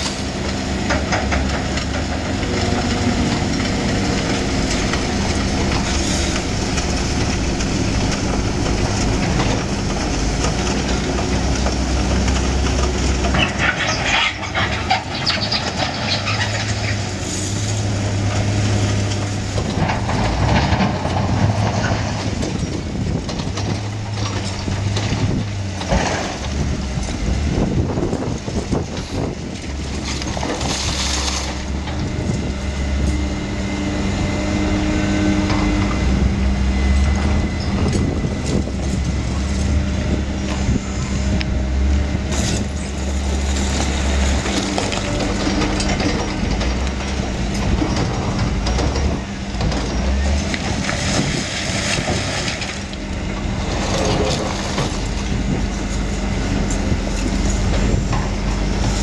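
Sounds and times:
diesel construction machines running: 0:00.0 - 0:59.0
rubble and metal clattering: 0:00.0 - 0:59.0.

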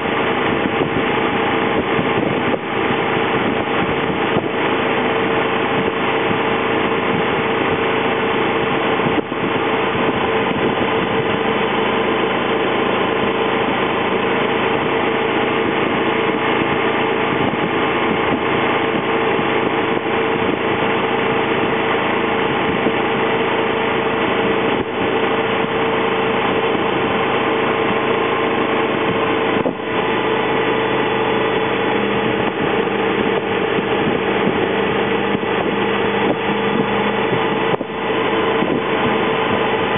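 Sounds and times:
motorcycle engine running: 0:00.0 - 0:39.9
rush of wind noise: 0:00.0 - 0:39.9.

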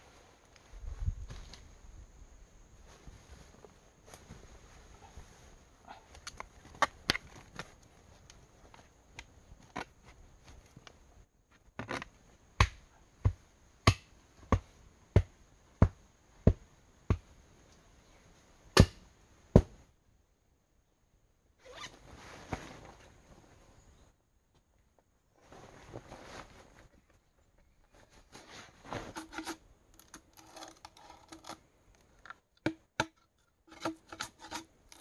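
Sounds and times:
clothing rustle: 0:02.8 - 0:06.7, 0:21.6 - 0:23.7, 0:25.4 - 0:29.6
hand tool striking earth and rock: 0:12.6 - 0:17.3, 0:18.8 - 0:19.8, 0:32.6 - 0:35.0.

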